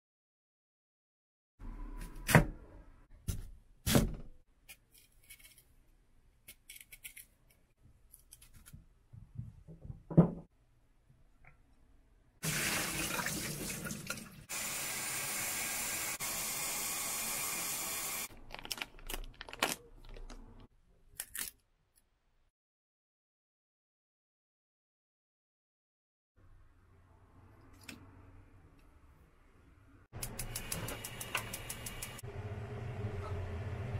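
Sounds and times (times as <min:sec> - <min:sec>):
tap water running into bowl: 0:12.5 - 0:14.4.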